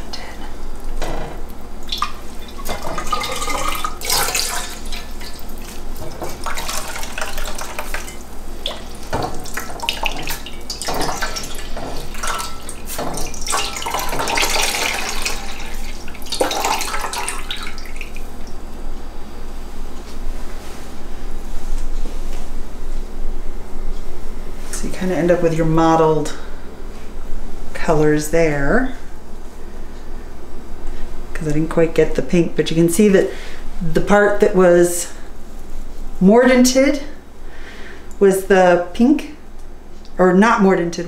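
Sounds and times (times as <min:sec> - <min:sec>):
liquid splashing into a bowl: 0:01.8 - 0:18.6
wet wool being wrung by hand: 0:01.9 - 0:18.3.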